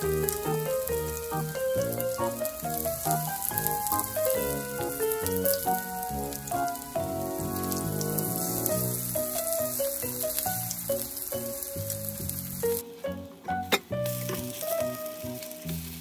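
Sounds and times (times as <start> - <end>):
batter sizzling in oil: 0.0 - 13.0, 14.0 - 16.0
background music: 0.0 - 16.0.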